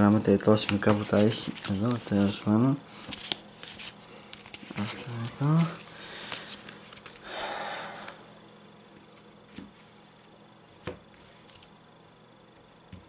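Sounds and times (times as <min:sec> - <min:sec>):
cards rustling: 0:00.4 - 0:07.4.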